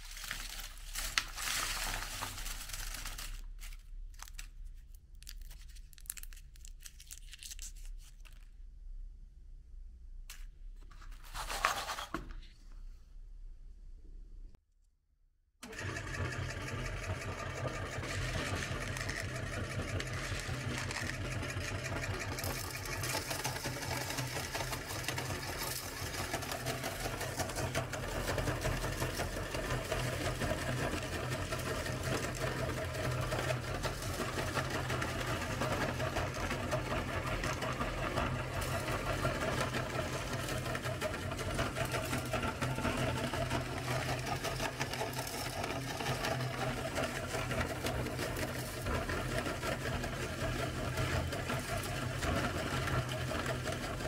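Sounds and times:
candies crunching into powder: 0.0s - 8.5s
meat grinder motor humming: 15.6s - 54.0s.

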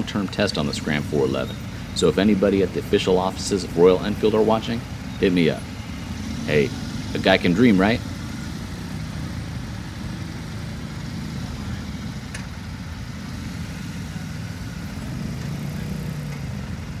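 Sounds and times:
motorcycle engines idling: 0.0s - 17.0s.

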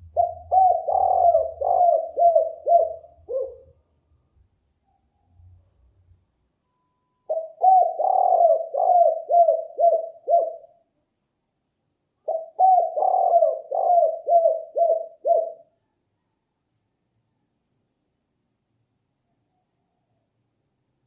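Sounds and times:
dove cooing: 0.0s - 3.8s, 7.3s - 10.8s, 12.2s - 15.8s.

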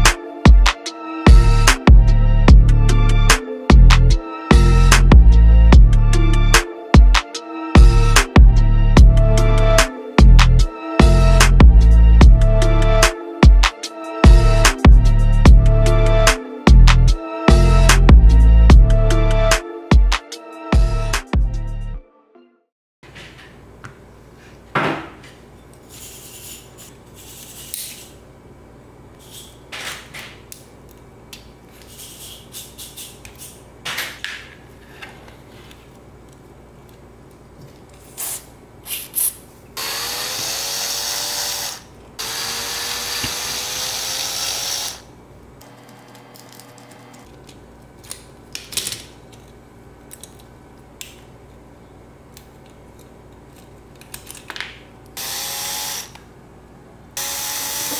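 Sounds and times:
electric screwdriver running: 39.8s - 47.1s, 55.2s - 56.2s, 57.2s - 57.9s
clicks of parts handled: 46.4s - 51.3s, 52.3s - 54.8s.

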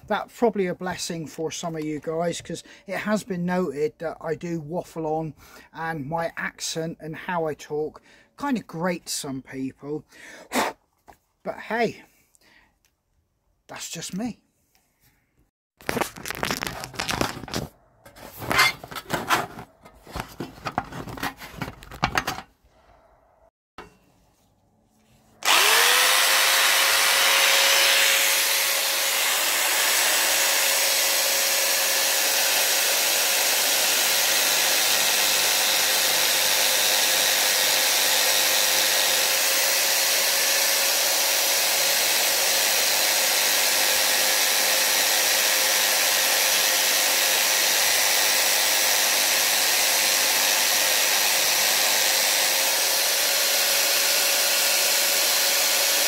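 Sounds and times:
drill bit grinding wood: 25.4s - 56.0s
electric drill motor whine: 25.4s - 56.0s.

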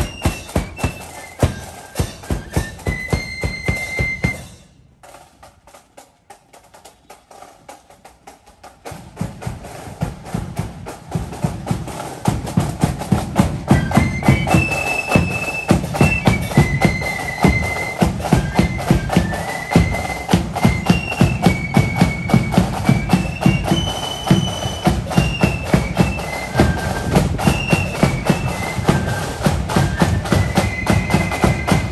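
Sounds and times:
flutes playing high tune: 0.0s - 4.8s, 13.4s - 31.9s
drums beating march rhythm: 0.0s - 31.9s.

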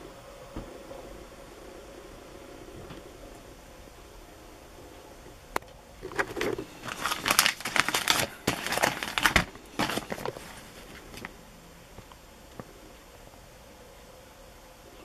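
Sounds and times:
plastic wrapping crinkling: 6.0s - 11.4s.

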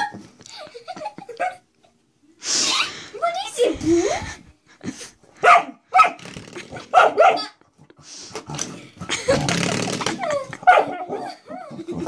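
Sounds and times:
dog barking: 5.4s - 6.2s, 6.9s - 7.6s, 10.6s - 11.4s.

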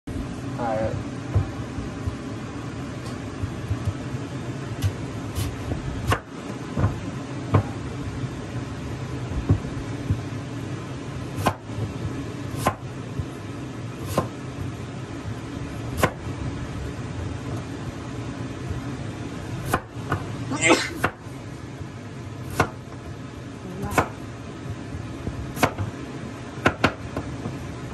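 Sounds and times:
low hum: 0.1s - 20.6s.

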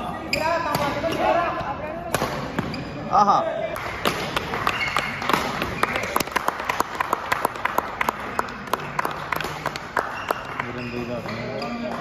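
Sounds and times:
people clapping: 3.8s - 12.0s.

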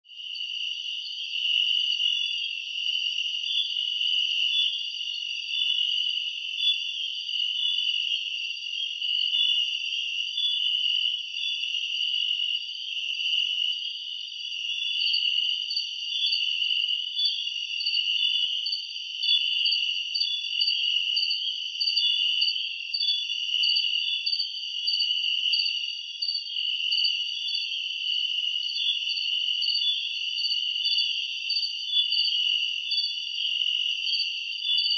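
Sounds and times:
insect chirp: 0.1s - 34.9s.

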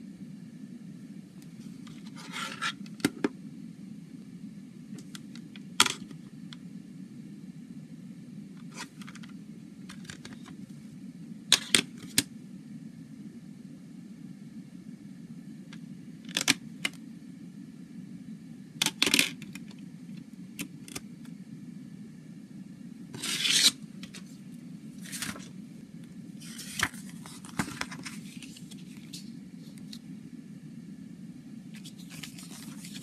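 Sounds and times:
steady low hum: 0.0s - 33.0s
paper pages rustling: 25.0s - 25.5s, 26.4s - 30.0s, 31.8s - 33.0s.

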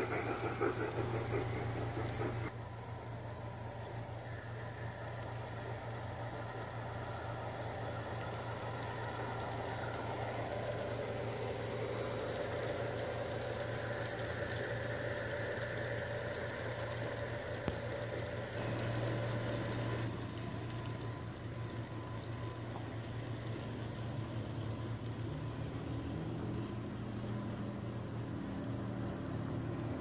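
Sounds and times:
model train wheels clicking on rails: 0.0s - 2.5s, 4.5s - 21.8s
steady low hum: 0.0s - 30.0s.

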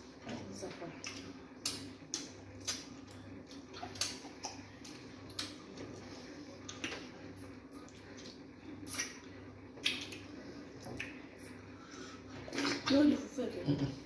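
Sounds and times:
low steady hum: 0.0s - 14.0s
wet mouth and finger smacks: 1.0s - 5.6s, 6.6s - 7.0s, 7.8s - 11.2s.

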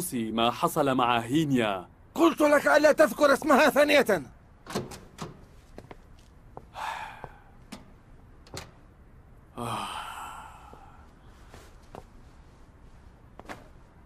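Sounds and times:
man sighing: 6.7s - 7.6s, 9.5s - 11.1s.

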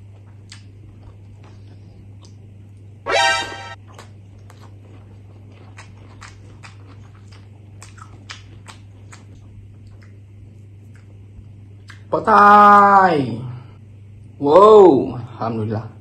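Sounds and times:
wet chewing: 0.0s - 2.4s, 3.8s - 12.1s
steady low hum: 0.0s - 16.0s.

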